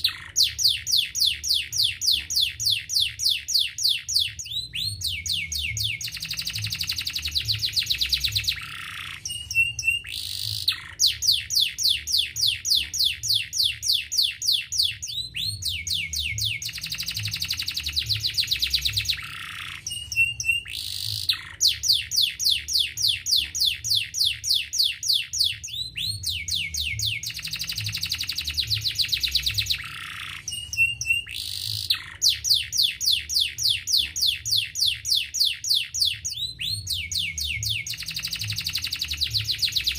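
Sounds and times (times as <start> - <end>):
canary singing trills: 0.0 - 39.9
short high bird chirps: 0.0 - 39.9.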